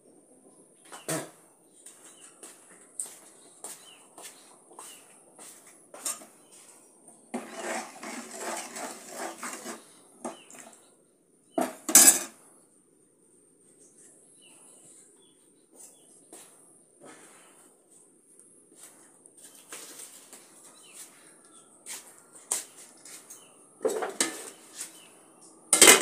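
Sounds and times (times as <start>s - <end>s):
utensils and dishes clinking: 11.6s - 12.4s, 25.7s - 26.0s.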